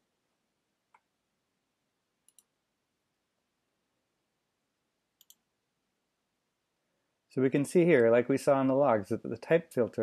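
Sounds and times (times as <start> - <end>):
computer mouse clicks: 2.2 - 2.5, 5.2 - 5.5.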